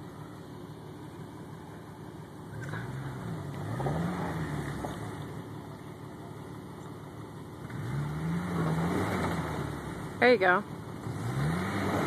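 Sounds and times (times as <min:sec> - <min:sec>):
engine revving: 0:02.5 - 0:05.5, 0:07.5 - 0:12.0.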